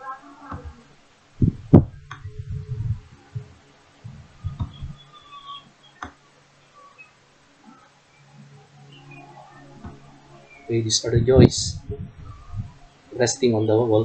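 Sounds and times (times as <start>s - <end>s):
faint steady hum: 0.0s - 14.0s
dull low thumps: 0.5s - 5.0s, 11.0s - 12.9s.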